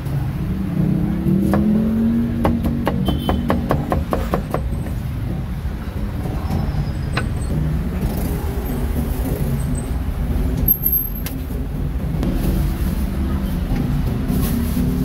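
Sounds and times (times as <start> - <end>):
street traffic rumble: 0.0 - 15.0
sharp knocks: 2.4 - 5.0.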